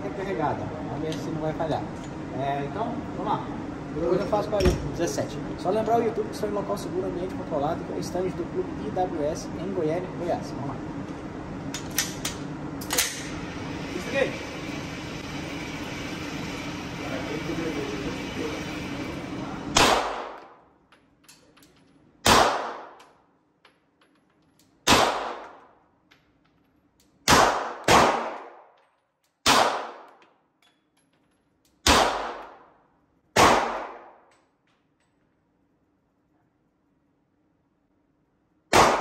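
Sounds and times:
pistol shots echoing indoors: 19.7s - 20.6s, 22.2s - 23.2s, 24.8s - 25.8s, 27.2s - 30.5s, 31.8s - 34.4s, 38.7s - 39.0s.

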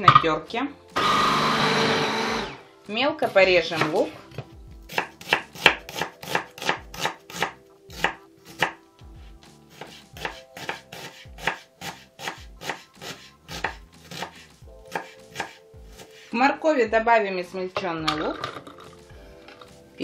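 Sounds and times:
knife chopping on wooden board: 3.7s - 8.8s, 9.7s - 16.3s.

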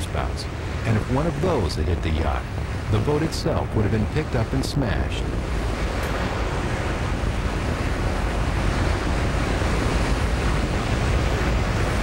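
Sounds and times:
strong wind rushing: 0.0s - 12.0s
wind noise on microphone: 2.4s - 12.0s.

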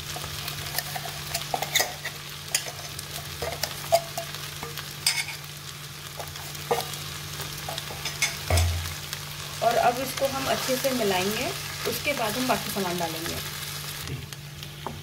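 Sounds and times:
food sizzling in a pan: 0.0s - 15.0s
bowl and spatula knocking on pan: 8.4s - 8.9s.

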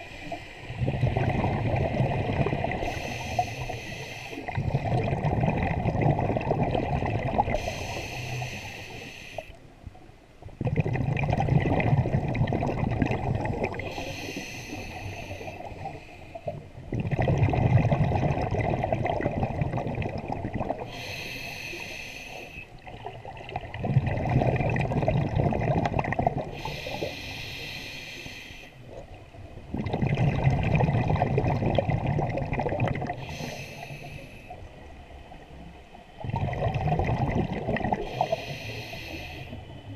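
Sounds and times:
exhaled bubbles gurgling: 0.0s - 9.5s, 10.4s - 35.5s, 36.1s - 39.9s
regulator inhale hiss: 2.8s - 4.6s, 7.6s - 9.7s, 13.8s - 16.6s, 20.8s - 22.8s, 26.5s - 28.9s, 33.2s - 34.6s, 38.0s - 39.8s.

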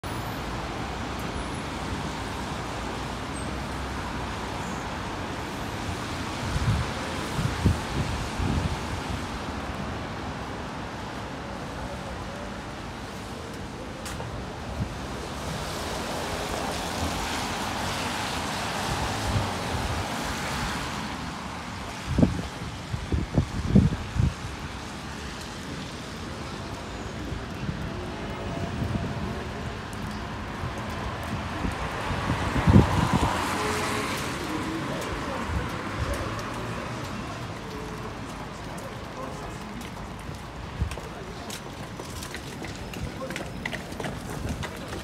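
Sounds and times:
street traffic hiss: 0.1s - 45.0s
wind buffeting microphone: 6.1s - 9.8s, 18.8s - 24.9s, 30.4s - 38.3s, 40.1s - 45.0s.

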